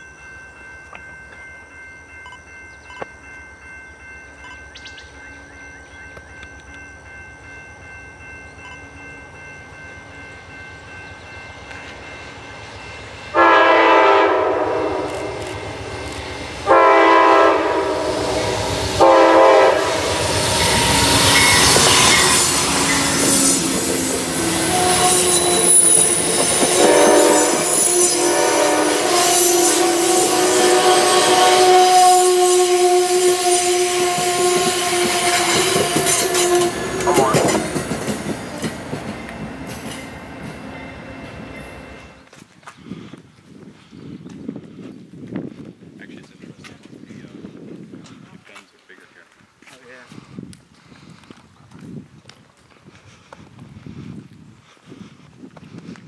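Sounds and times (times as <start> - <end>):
train rumble: 5.0 - 42.4
train horn blasts: 13.3 - 15.6, 16.6 - 37.9
coaches clattering on rails: 34.1 - 41.0.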